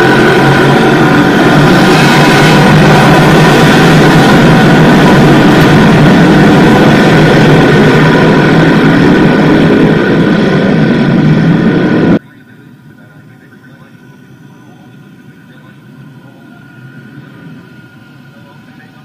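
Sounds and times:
race cars racing: 0.0 - 12.2.

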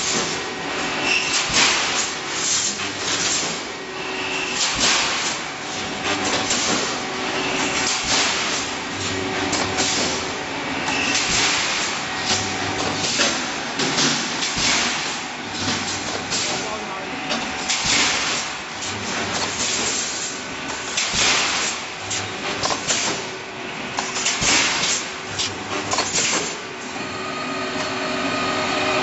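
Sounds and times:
welding machine clatter: 0.0 - 3.8, 4.4 - 26.9
sharp machine knocks: 1.4 - 2.1, 4.6 - 5.4, 7.8 - 8.6, 11.1 - 15.1, 17.7 - 18.5, 21.0 - 21.8, 24.2 - 25.0
low machine hum: 26.8 - 29.0.

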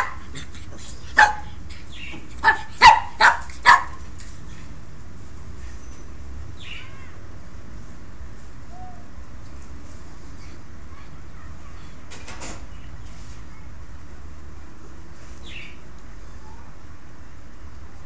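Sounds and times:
dog barking: 0.0 - 0.3, 1.2 - 1.6, 2.4 - 4.0.

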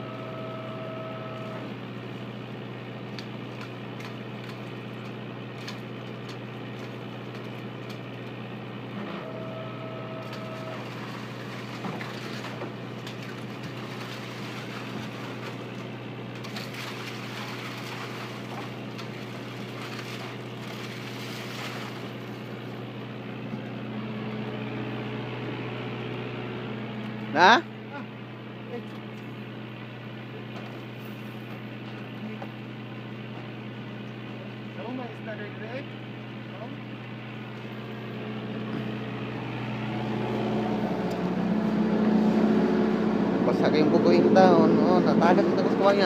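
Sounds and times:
boat engine drone: 0.0 - 46.0
high whine: 37.6 - 46.0.

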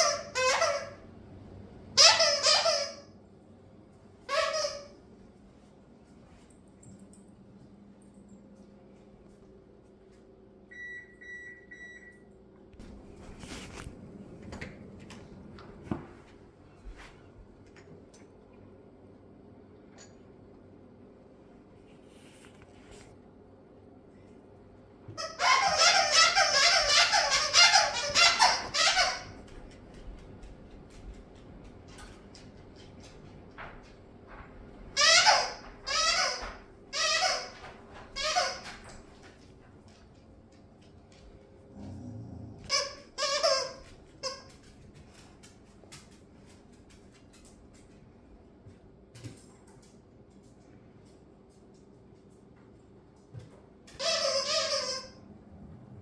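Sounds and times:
appliance beeps: 10.7 - 12.3
footsteps: 12.8 - 17.5, 28.0 - 35.0.

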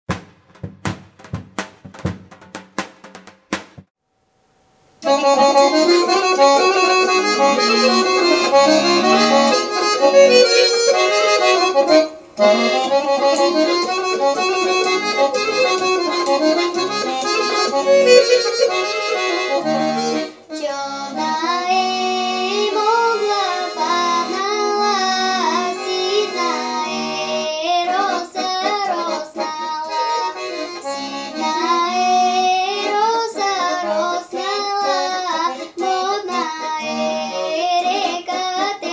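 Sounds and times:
folk instrumental accompaniment: 5.0 - 38.9
girl singing: 20.5 - 38.9.

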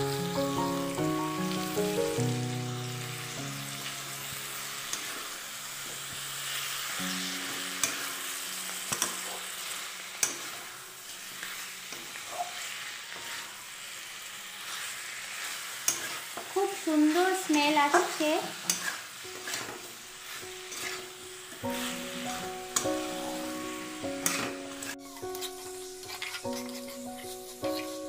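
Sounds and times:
background music with held notes: 0.0 - 12.2, 19.2 - 28.0
curry sizzling in a pan: 0.0 - 28.0
metal spatula scraping a pan: 6.6 - 23.3, 24.2 - 28.0.

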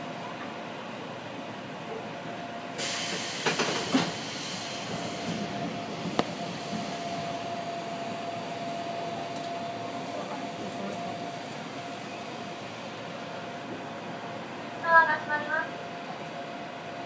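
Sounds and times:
electric train interior hum: 0.0 - 17.0.

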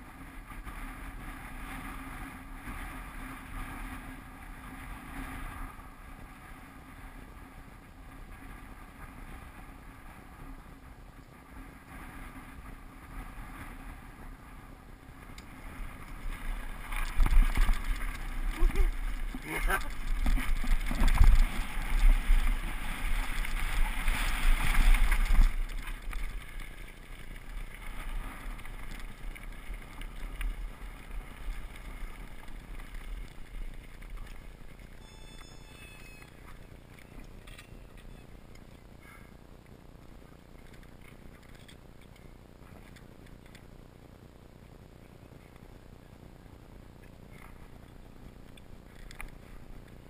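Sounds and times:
tyres rumbling over gravel: 15.5 - 35.5.

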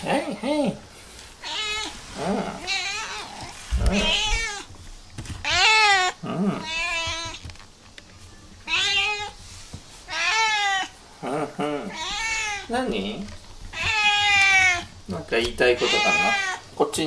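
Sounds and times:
cat meowing: 1.4 - 4.7, 5.4 - 7.4, 8.6 - 9.4, 10.1 - 11.0, 11.9 - 12.7, 13.7 - 14.9, 15.6 - 16.7.

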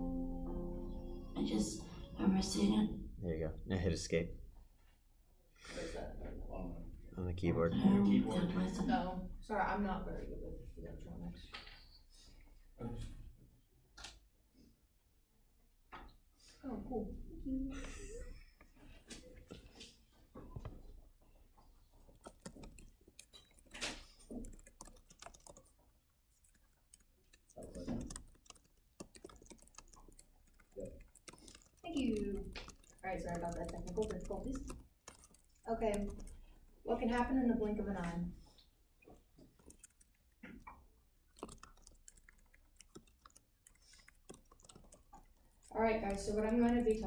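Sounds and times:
computer keyboard clicks: 22.1 - 25.8, 26.4 - 38.1, 39.2 - 47.0.

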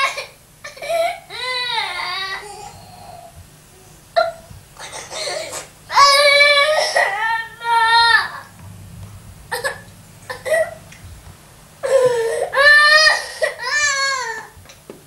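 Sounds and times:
toddler crying: 0.0 - 3.3, 11.8 - 14.6.

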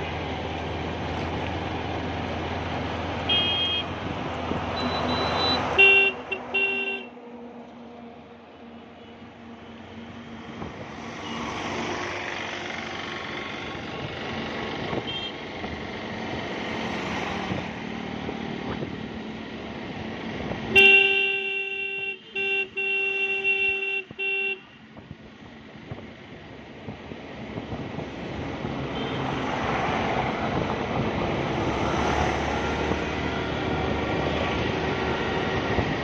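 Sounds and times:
vehicle horn blasts: 3.3 - 3.9, 5.8 - 7.1, 15.0 - 15.4, 20.8 - 24.8
motorcycle wind and road noise: 10.1 - 36.0.

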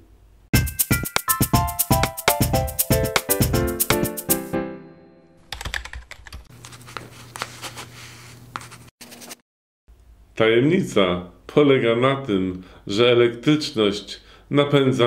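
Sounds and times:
plucked music notes: 0.6 - 5.1.

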